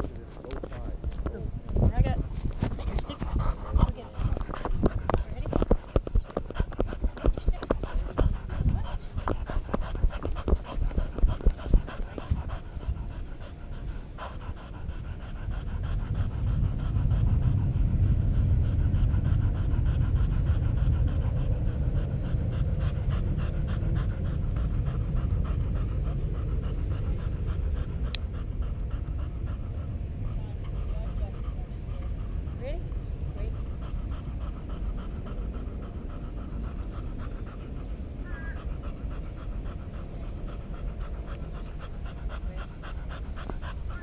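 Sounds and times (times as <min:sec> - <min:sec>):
knocks and bumps of dog moving: 0:00.0 - 0:12.4
dog panting: 0:00.0 - 0:44.0.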